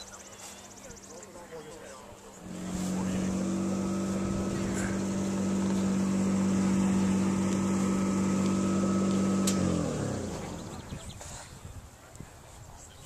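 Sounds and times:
car engine idling: 2.4 - 11.0.

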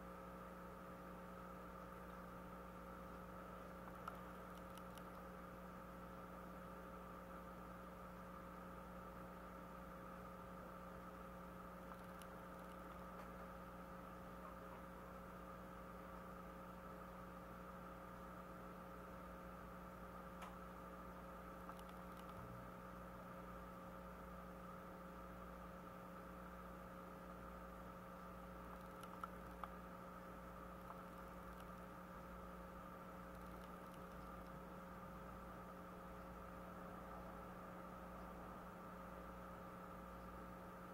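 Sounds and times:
faint electrical hum: 0.0 - 40.9
faint clicks: 3.8 - 5.3, 11.8 - 13.5, 21.6 - 22.5, 28.1 - 29.8, 30.8 - 32.3, 33.2 - 34.7.

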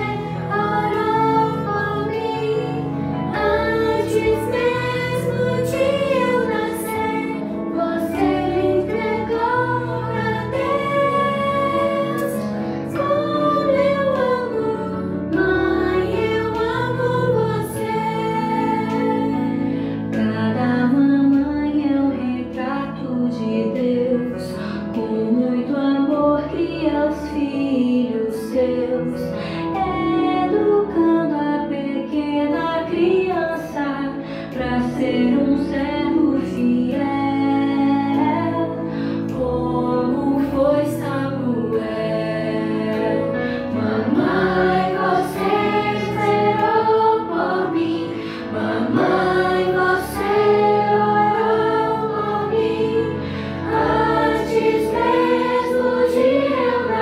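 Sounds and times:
voices singing together: 0.0 - 21.1, 39.3 - 57.0
instrumental accompaniment: 0.0 - 23.2, 32.9 - 57.0.

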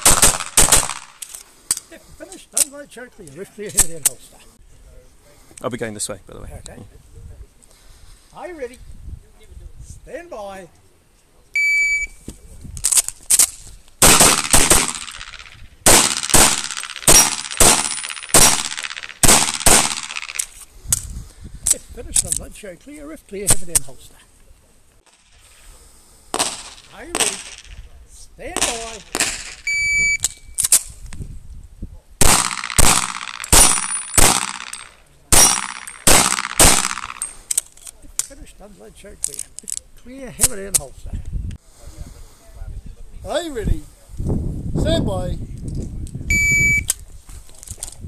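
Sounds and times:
rapid pistol shots: 0.0 - 1.2, 14.0 - 20.5, 26.3 - 27.8, 28.6 - 29.6, 32.2 - 37.3.

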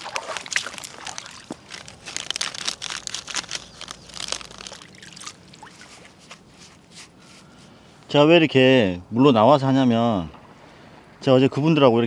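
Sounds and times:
bait pouring and mixing by hand: 0.0 - 6.1.

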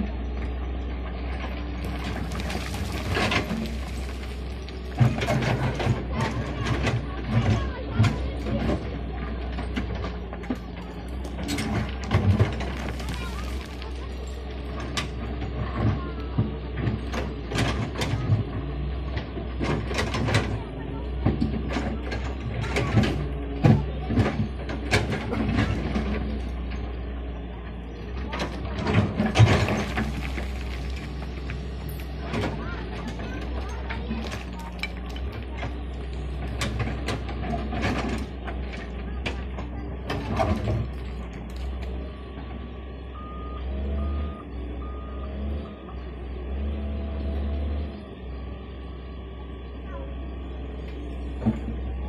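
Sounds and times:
excavator diesel engine running: 0.0 - 52.0
stones knocking against bucket: 1.8 - 5.8, 11.8 - 14.2, 29.0 - 31.6
rock and bucket clattering: 1.8 - 7.1, 9.7 - 16.0, 28.5 - 41.8.

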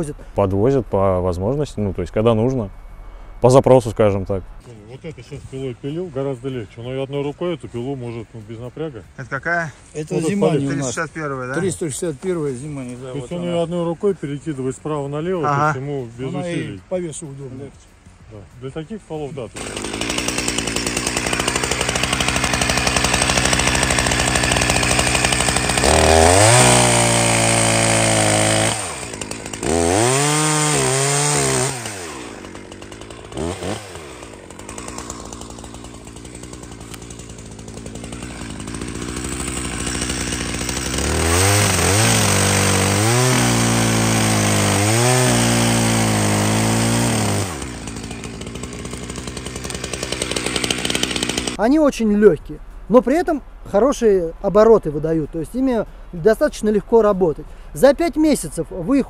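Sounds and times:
chainsaw cutting timber: 19.5 - 51.6.

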